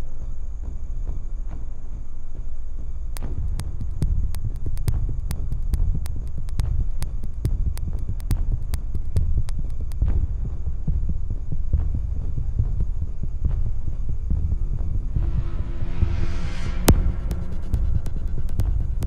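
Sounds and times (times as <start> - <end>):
deep suspense music drone: 0.0 - 19.0
sharp clicks: 3.2 - 10.1
hissing swell: 14.9 - 19.0.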